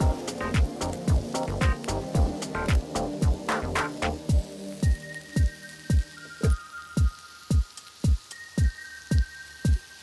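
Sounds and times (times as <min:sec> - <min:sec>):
steady kick drum beat: 0:00.0 - 0:09.9.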